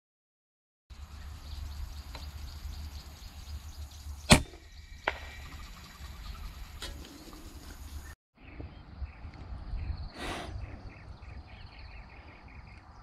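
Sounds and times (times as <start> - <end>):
wind rumbling on microphone: 1.0 - 13.0
air rifle firing: 4.3 - 5.4.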